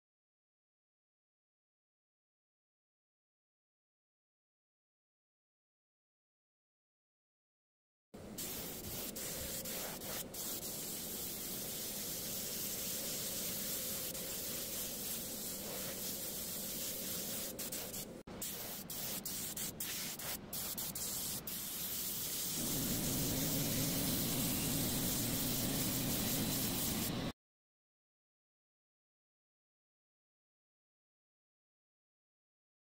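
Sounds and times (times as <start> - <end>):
paint spray hissing: 8.4 - 27.3.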